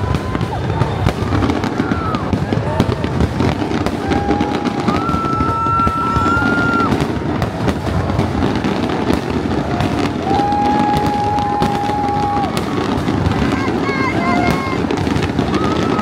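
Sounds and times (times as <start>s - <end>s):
long steady whistles: 0.0s - 2.2s, 9.4s - 13.0s
crowd noise rumble: 0.0s - 16.0s
fireworks banging and crackling: 0.0s - 16.0s.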